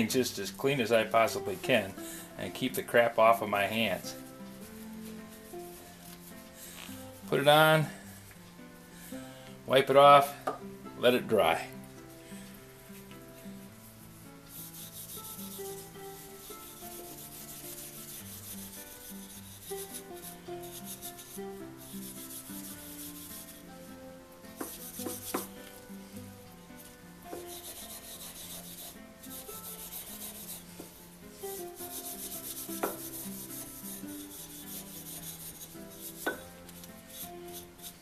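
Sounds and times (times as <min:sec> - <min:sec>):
soft music: 0:00.0 - 0:38.0
steel wool scratching wood: 0:14.5 - 0:23.7, 0:24.6 - 0:25.6, 0:26.8 - 0:38.0.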